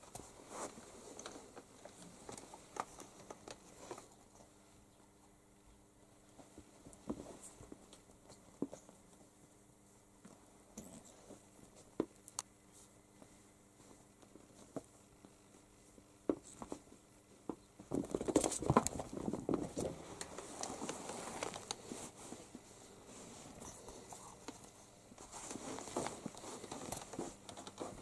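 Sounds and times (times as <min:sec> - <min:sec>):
cats scrabbling and rustling: 0:00.0 - 0:04.6, 0:06.2 - 0:09.2, 0:13.8 - 0:28.0.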